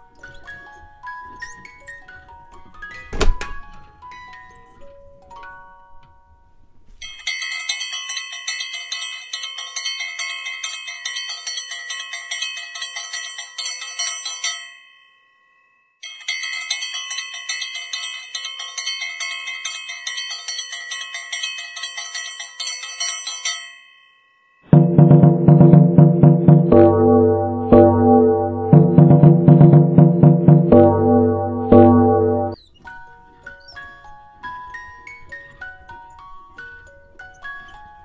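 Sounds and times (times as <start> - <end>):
bell-like chiming music: 14.4 - 38.0.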